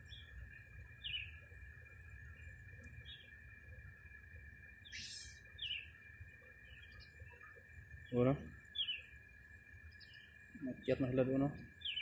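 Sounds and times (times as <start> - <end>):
small birds chirping: 0.0 - 12.0
steady high-pitched hum: 0.0 - 12.0.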